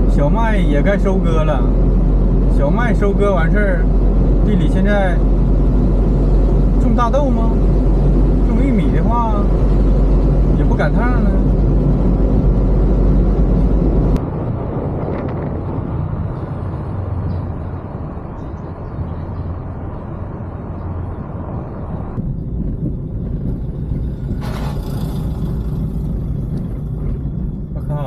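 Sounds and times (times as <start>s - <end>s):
minivan road rumble: 0.0s - 28.0s
rush of noise: 0.0s - 28.0s.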